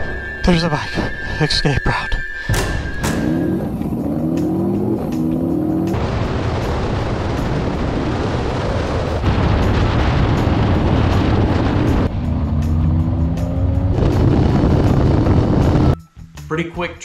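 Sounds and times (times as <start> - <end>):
background music: 0.0 - 7.8, 9.2 - 17.0
wind rushing over microphone: 6.0 - 13.2, 13.8 - 16.0.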